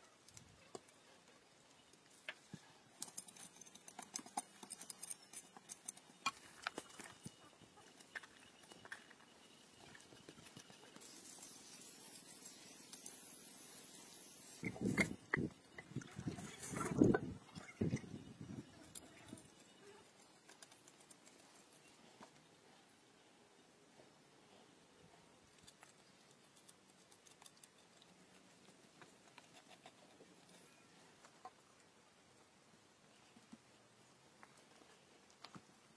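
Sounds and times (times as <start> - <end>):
faint clicks and scratches: 0.0 - 22.9, 24.0 - 35.9
steady high hiss: 6.2 - 15.8.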